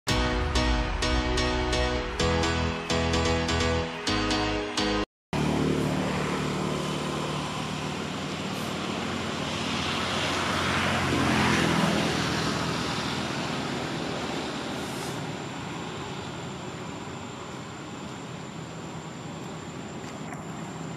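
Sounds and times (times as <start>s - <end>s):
vehicle passing by: 5.4s - 16.4s.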